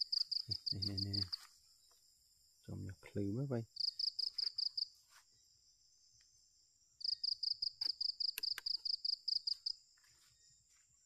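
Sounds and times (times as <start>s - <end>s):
high insect whine: 0.0s - 11.0s
insect chirping: 0.0s - 11.0s
sharp clicks: 8.3s - 8.8s.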